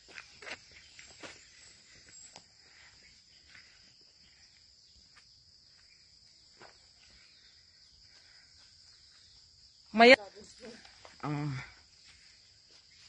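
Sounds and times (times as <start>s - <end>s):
soft footsteps: 11.9s - 13.0s.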